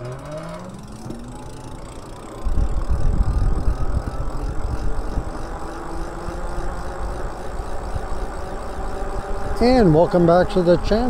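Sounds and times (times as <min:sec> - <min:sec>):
faint electric motor whine: 0:00.0 - 0:11.0
wind buffeting the microphone: 0:02.4 - 0:05.6.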